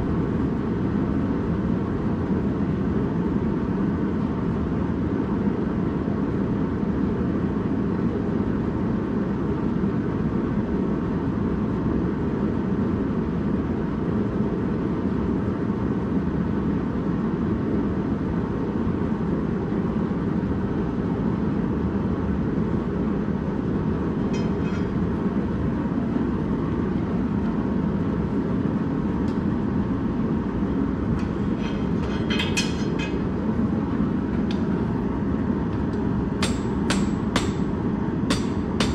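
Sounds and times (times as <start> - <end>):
gas forge burner rushing: 23.5 - 38.9.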